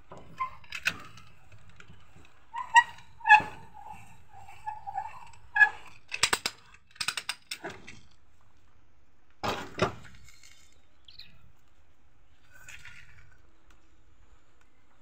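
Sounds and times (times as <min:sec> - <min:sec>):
plastic squeaks: 0:00.1 - 0:06.5
ratchet clicks and rattles: 0:00.2 - 0:08.0.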